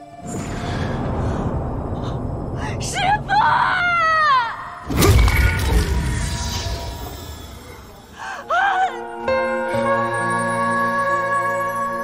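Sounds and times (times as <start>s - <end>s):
deep boom: 0.2s - 7.4s.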